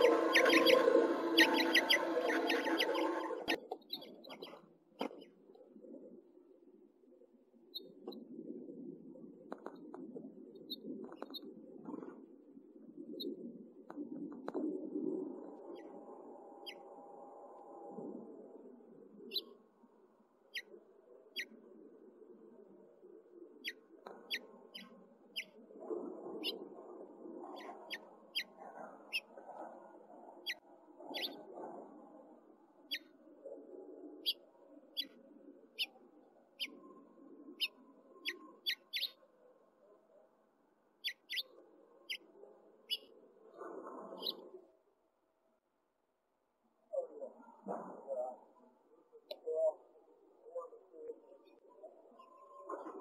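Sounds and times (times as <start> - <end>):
finch chirping: 0.0 - 4.6, 31.2 - 31.4, 37.6 - 39.2, 41.0 - 41.5.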